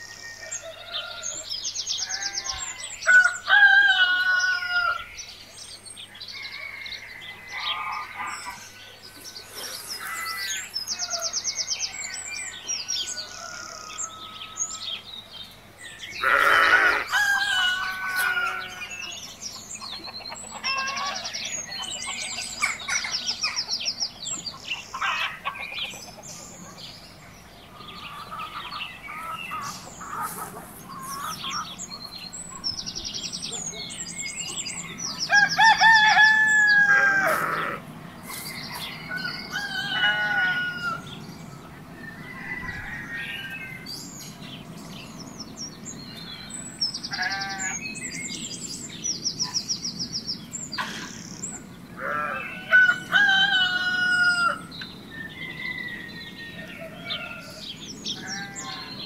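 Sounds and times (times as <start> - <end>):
rooster crowing: 0.2 - 5.1, 6.3 - 15.0, 16.2 - 19.2, 35.2 - 37.8, 39.0 - 41.2, 42.0 - 44.0, 52.0 - 59.0
small birds chirping: 4.3 - 59.0
hens clucking: 16.2 - 32.2.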